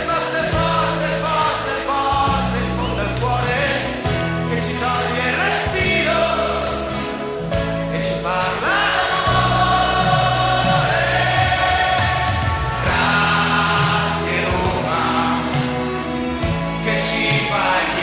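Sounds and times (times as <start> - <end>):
held bass notes: 0.0 - 18.0
choir singing gliding notes: 8.3 - 18.0
percussion beat: 8.4 - 18.0.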